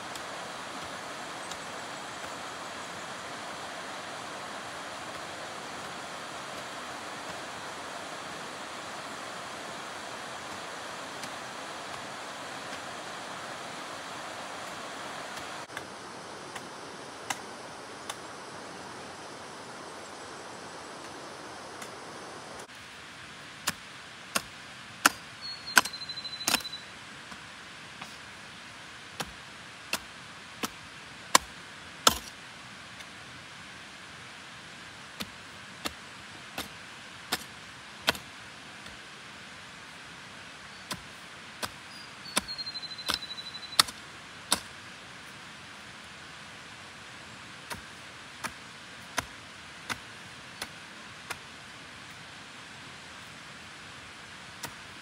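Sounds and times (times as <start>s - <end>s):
low steady hiss: 0.0s - 55.0s
hand tool chopping: 32.1s - 32.3s, 43.8s - 44.7s, 47.7s - 49.3s.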